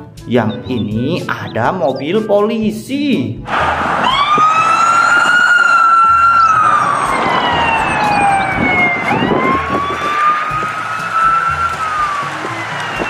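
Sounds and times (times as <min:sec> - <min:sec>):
police siren wailing: 0:03.5 - 0:13.0.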